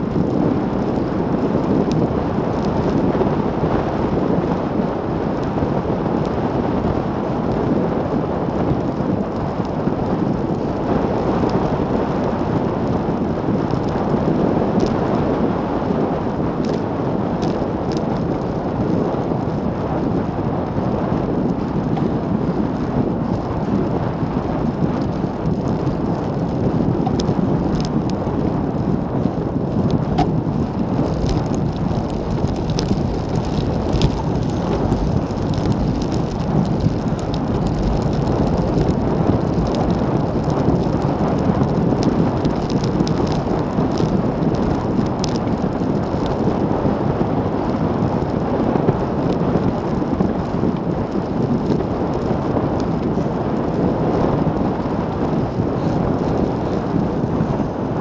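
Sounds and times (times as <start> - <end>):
bike tyre noise on road: 0.0 - 58.0
wind buffeting a microphone: 0.0 - 58.0
small ticks: 31.0 - 41.0, 42.0 - 46.4.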